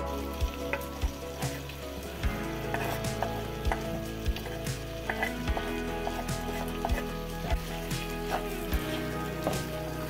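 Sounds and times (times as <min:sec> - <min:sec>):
background music of held notes: 0:00.0 - 0:10.0
vegetables sizzling in a frying pan: 0:00.0 - 0:10.0.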